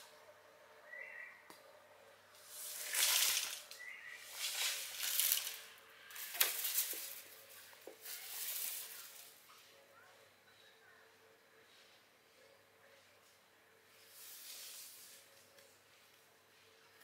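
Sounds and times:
rustling swishes: 2.4s - 9.3s.

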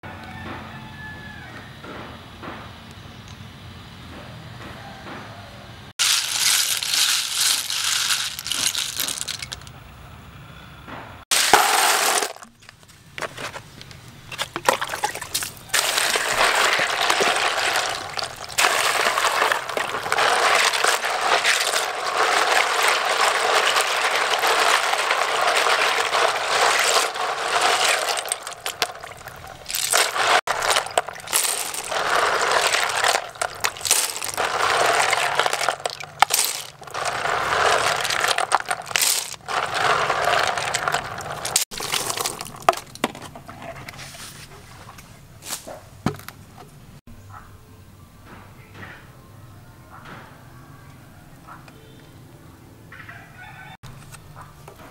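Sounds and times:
snail shells clattering in colander: 6.0s - 9.7s, 11.3s - 12.6s, 14.5s - 43.1s
water splashing in basin: 14.4s - 42.8s.

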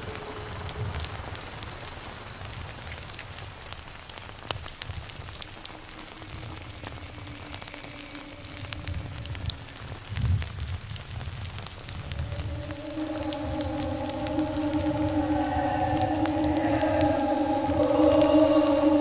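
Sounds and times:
hissing and crackling noise: 0.0s - 19.0s
low rumble: 5.9s - 10.6s, 11.6s - 19.0s
faint held tones: 12.1s - 19.0s.

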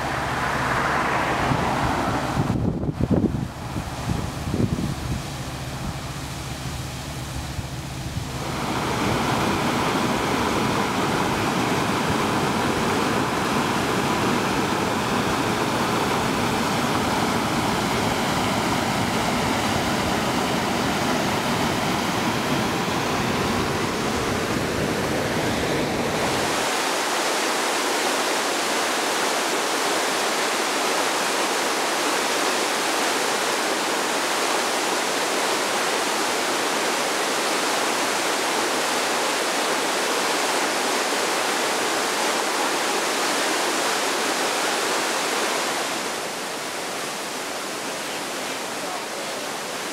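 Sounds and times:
waterfall and stream rushing: 0.0s - 49.9s.

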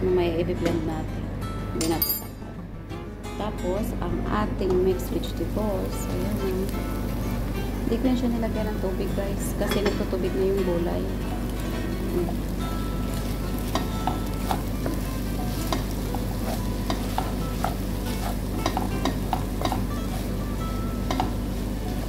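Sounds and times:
light sizzle: 4.5s - 22.0s
spatula scraping and tapping pan: 13.1s - 22.0s.

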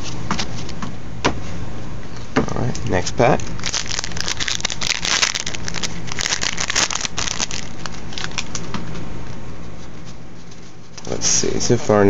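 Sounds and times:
steady low hum: 0.0s - 12.0s
foil wrapper crinkling: 3.3s - 8.6s.

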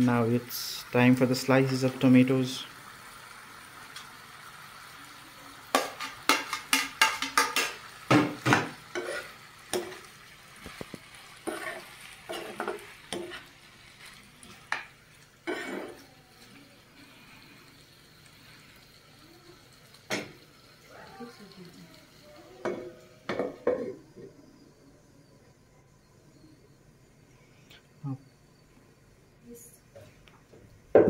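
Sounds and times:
low sizzle of frying: 0.0s - 31.0s
metal spoon scraping a frying pan: 8.9s - 10.1s, 11.4s - 13.6s.

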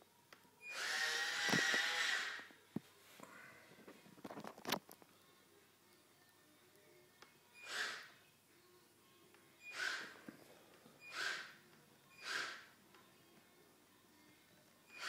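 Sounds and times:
toy robot motors whirring: 0.7s - 2.5s, 7.6s - 8.1s, 9.7s - 10.2s, 11.0s - 12.7s.

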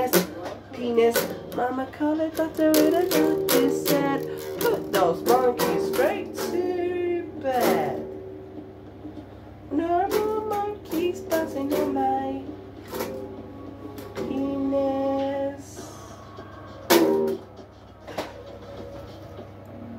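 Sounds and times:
man singing: 0.0s - 8.0s
acoustic guitar strums: 0.0s - 14.8s, 16.8s - 18.8s.

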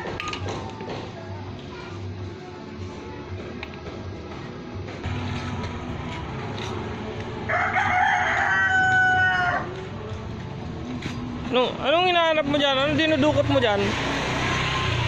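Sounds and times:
rooster crowing: 7.5s - 9.8s.

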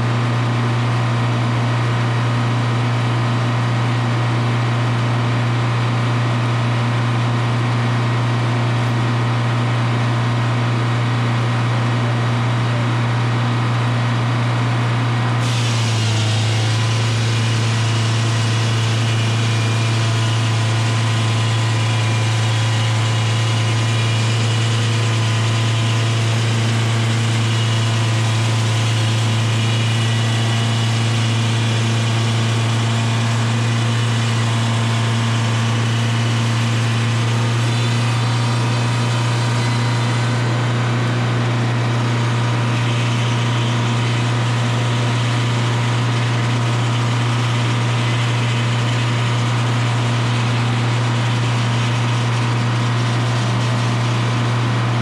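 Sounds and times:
two-stroke diesel engine running: 0.0s - 55.0s
circular saw blade cutting wood: 15.4s - 55.0s.

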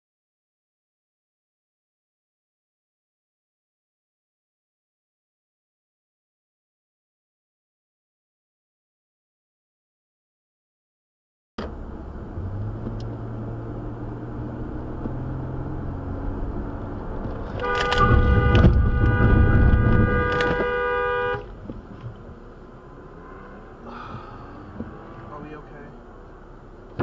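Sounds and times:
car road and engine noise: 11.6s - 27.0s
car horn: 17.4s - 21.6s, 22.8s - 24.1s.

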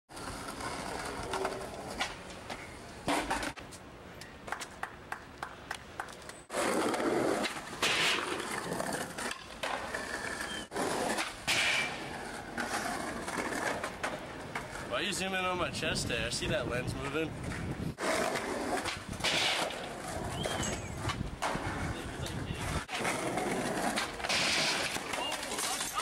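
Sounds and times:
skateboard clacking on ground: 0.1s - 15.0s, 17.0s - 26.0s
skateboard wheels rolling on concrete: 0.1s - 26.0s.

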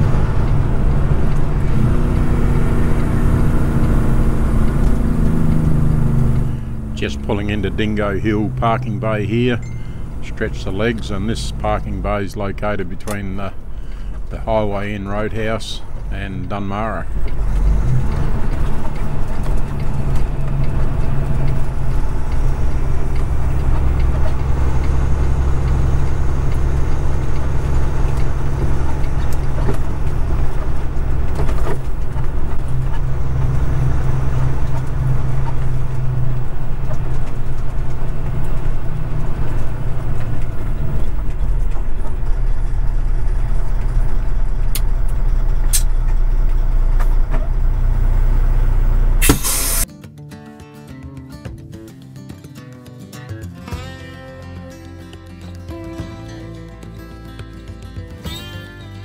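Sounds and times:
truck diesel engine droning: 0.0s - 49.8s, 53.6s - 59.0s.

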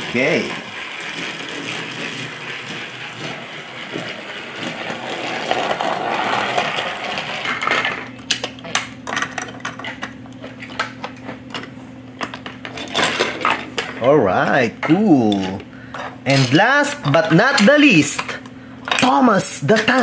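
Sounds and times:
toy train whirring rattle: 0.0s - 8.0s.

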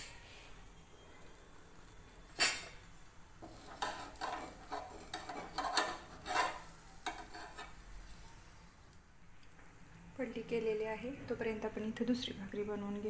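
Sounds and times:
scraping and knocking on pan: 3.4s - 7.8s.

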